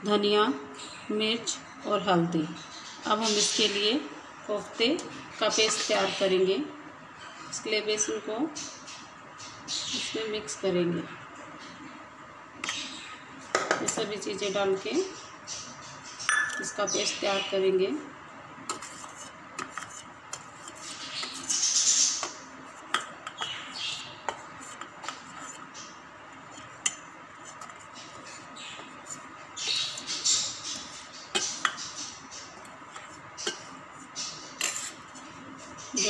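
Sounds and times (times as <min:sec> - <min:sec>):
steel spoon scraping bowls: 0:34.6 - 0:35.2.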